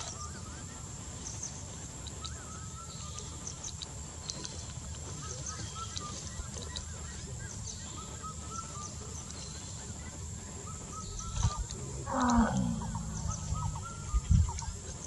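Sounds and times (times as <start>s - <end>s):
bird chirps: 0.0s - 15.0s
low background noise: 0.0s - 15.0s
elephant call: 10.6s - 15.0s.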